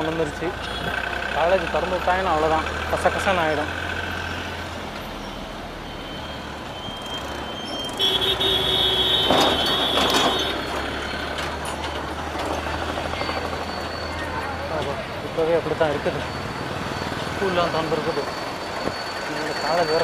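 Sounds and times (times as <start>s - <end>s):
road traffic: 0.0s - 20.0s
high-pitched tone: 15.4s - 20.0s.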